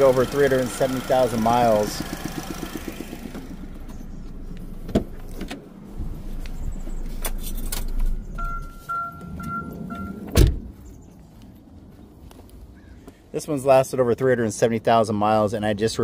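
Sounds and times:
car door shutting thump: 4.8s - 5.6s, 10.3s - 10.7s
electronic warning chime beeping: 8.0s - 10.3s.

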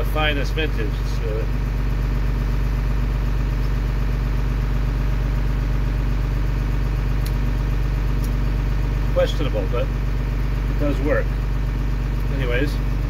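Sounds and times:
tractor engine humming: 0.0s - 13.0s.

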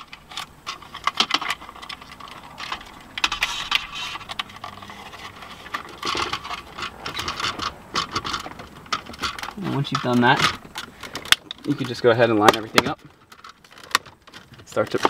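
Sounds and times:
plastic trim panel clicks and rattles: 0.0s - 15.0s.

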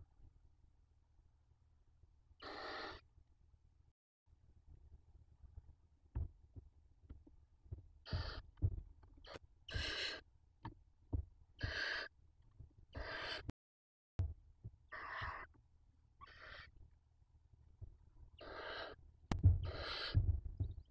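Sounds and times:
owl chicks hissing: 2.4s - 3.0s, 8.1s - 8.4s, 9.2s - 10.2s, 11.6s - 12.1s, 12.9s - 13.5s, 14.9s - 15.5s, 16.2s - 16.7s, 18.4s - 19.0s, 19.6s - 20.2s.

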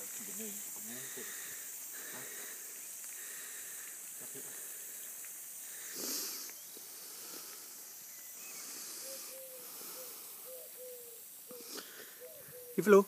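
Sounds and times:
sprinkler spraying water: 0.0s - 9.0s.

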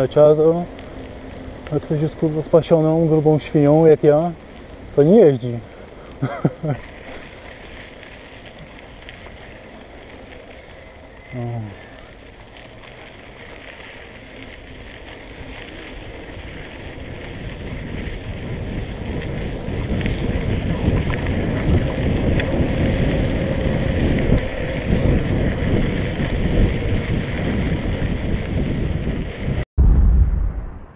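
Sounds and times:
wind buffeting microphone: 15.3s - 30.9s.

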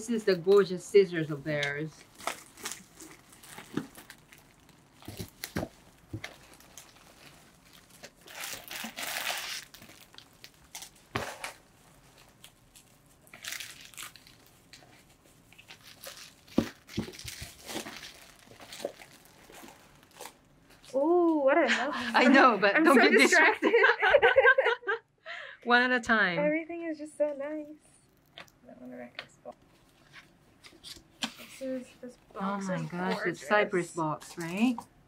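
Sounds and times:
plastic bags crinkling: 0.0s - 20.9s
packages knocking: 16.1s - 19.2s.

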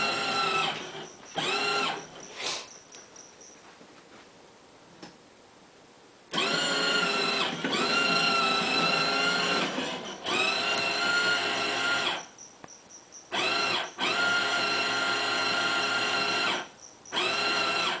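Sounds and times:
toy train motor whining: 0.0s - 2.8s, 6.3s - 12.3s, 13.3s - 18.0s.

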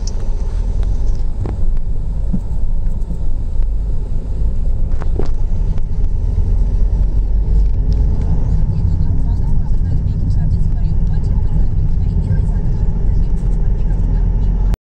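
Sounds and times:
road and engine rumble in car: 0.0s - 14.8s.

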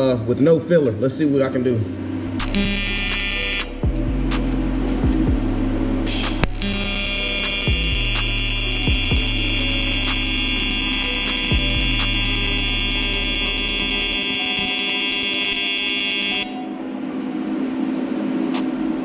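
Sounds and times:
low hum: 1.8s - 19.0s
welding arc buzzing: 2.4s - 3.9s, 6.1s - 16.7s.

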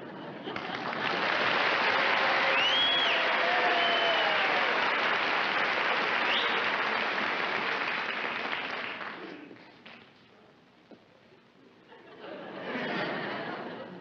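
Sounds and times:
studio audience applauding: 0.5s - 9.5s
short whistle: 6.2s - 6.6s.

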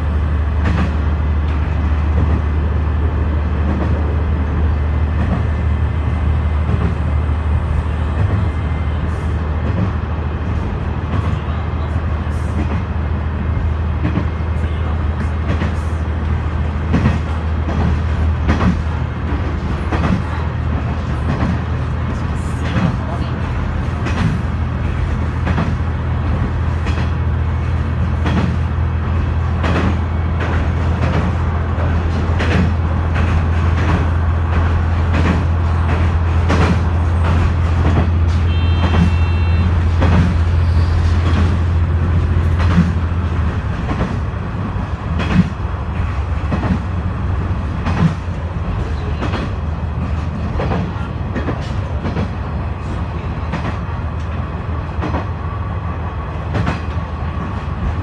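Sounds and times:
wheels clicking over rail joints: 15.2s - 55.4s.

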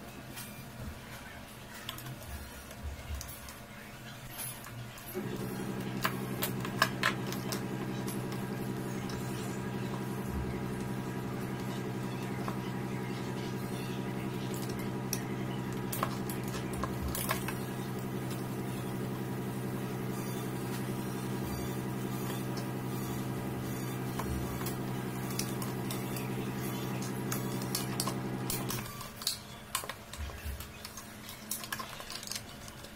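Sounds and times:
steady low hum: 5.1s - 28.9s
plastic tool parts clicking: 30.9s - 32.5s.

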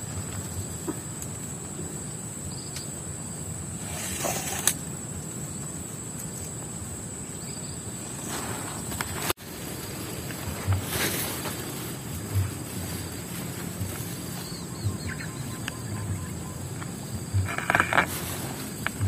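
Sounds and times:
low outdoor noise: 0.0s - 19.0s
tarp rustle: 8.2s - 16.1s, 17.4s - 19.0s
high-pitched insect drone: 11.8s - 19.0s.

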